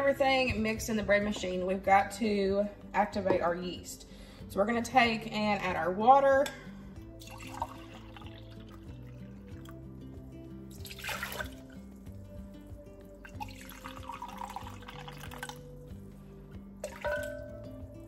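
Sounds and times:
background music: 0:00.0 - 0:18.0
water pouring into plastic cup: 0:07.2 - 0:09.8, 0:10.8 - 0:11.8, 0:13.3 - 0:15.7.

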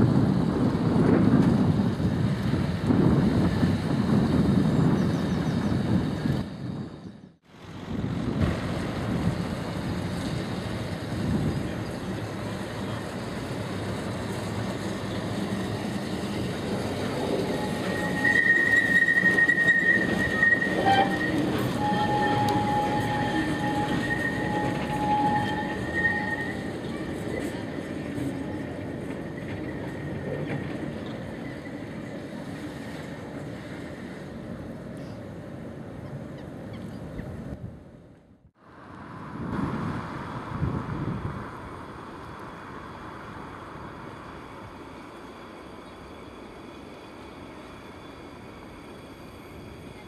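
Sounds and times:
wheels rumbling on rail: 0:00.0 - 0:50.0
high wheel squeal: 0:17.1 - 0:27.4.

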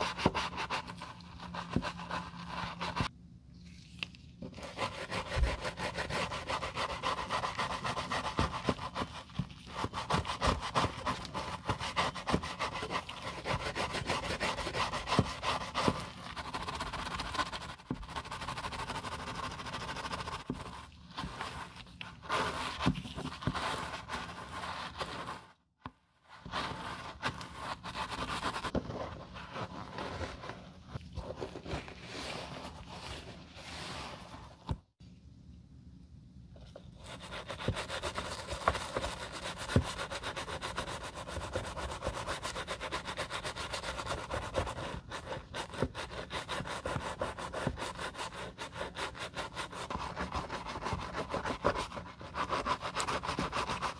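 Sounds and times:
brush scrubbing leather shoe: 0:37.1 - 0:53.9.

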